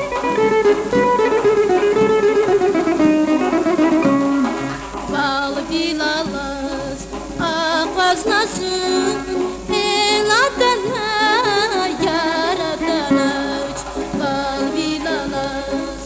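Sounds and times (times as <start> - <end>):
plucked and bowed strings: 0.0 - 16.0
woman singing with vibrato: 5.0 - 16.0.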